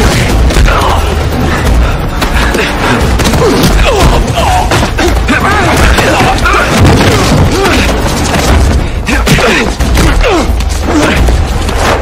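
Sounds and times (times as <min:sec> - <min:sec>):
fight blows and scuffling: 0:00.0 - 0:12.0
loud film score pulse: 0:00.0 - 0:12.0.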